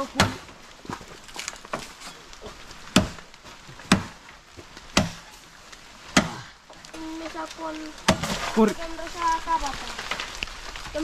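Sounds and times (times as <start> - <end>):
blade chopping bamboo: 2.9 - 3.2, 3.8 - 4.2, 4.9 - 5.3, 6.1 - 6.5, 8.0 - 8.5.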